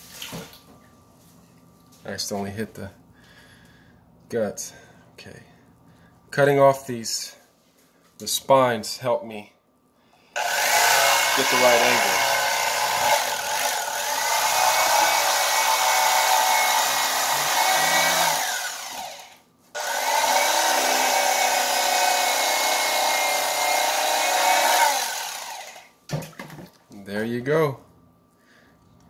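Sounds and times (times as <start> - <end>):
electric fillet knife running: 10.4 - 25.9.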